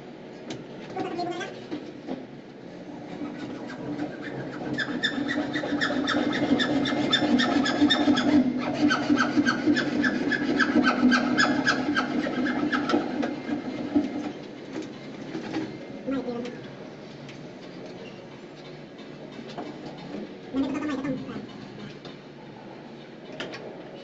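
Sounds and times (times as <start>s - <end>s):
rasping strokes on plastic pipe: 3.0s - 14.0s.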